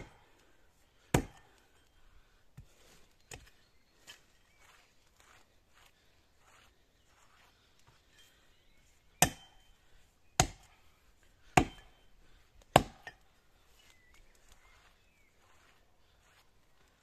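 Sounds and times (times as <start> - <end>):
axe chopping wood: 1.1 - 1.5, 9.2 - 9.6, 10.4 - 10.7, 11.5 - 11.9, 12.6 - 13.2.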